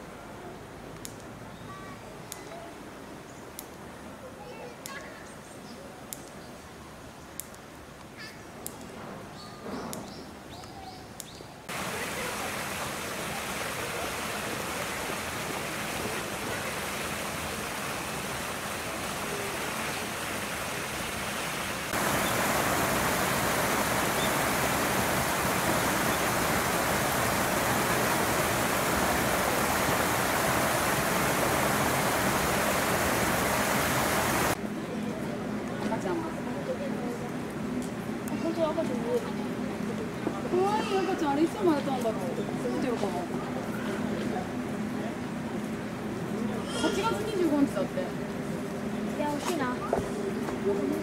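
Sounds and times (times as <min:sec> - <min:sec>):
steady rushing noise: 0:11.7 - 0:34.6.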